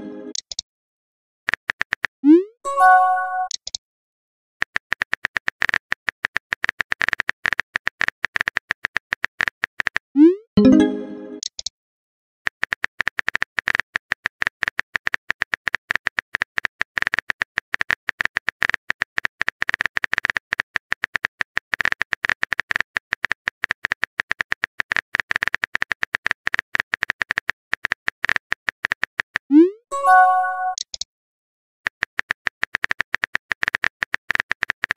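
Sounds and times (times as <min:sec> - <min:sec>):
phone keyboard typing clicks: 0:03.4 - 0:03.8, 0:11.4 - 0:11.7, 0:30.7 - 0:31.1, 0:31.9 - 0:34.9.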